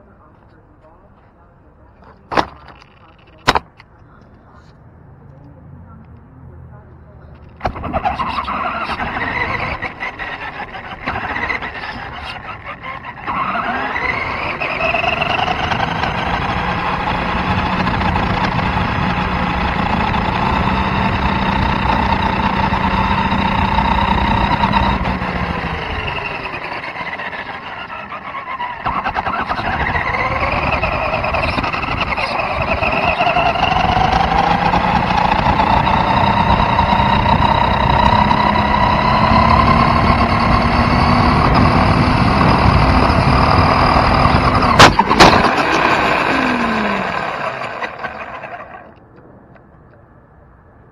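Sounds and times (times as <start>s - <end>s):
small fuel engine revving: 7.3s - 49.0s.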